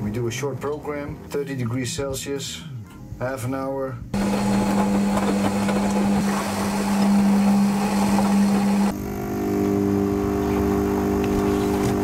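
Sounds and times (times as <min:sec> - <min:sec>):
electrical hum: 0:00.0 - 0:12.0
washing machine motor humming: 0:04.1 - 0:12.0.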